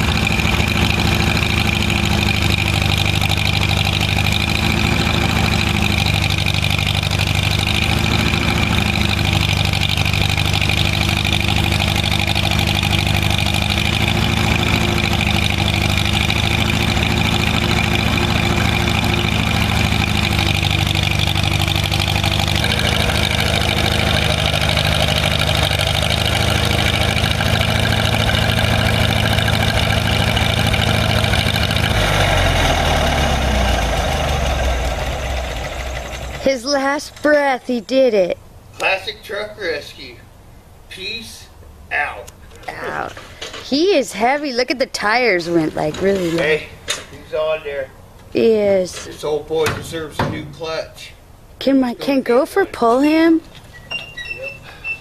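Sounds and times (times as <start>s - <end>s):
vehicle engine running at low speed: 0.0s - 51.6s.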